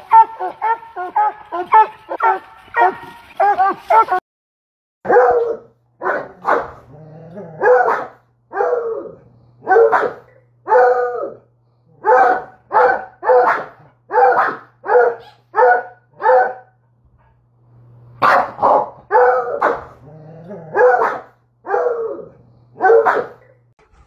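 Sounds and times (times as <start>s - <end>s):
dog barking: 0.0s - 4.2s, 5.1s - 6.8s, 7.6s - 11.4s, 12.0s - 16.8s, 18.2s - 20.0s, 20.7s - 22.1s, 22.8s - 23.5s.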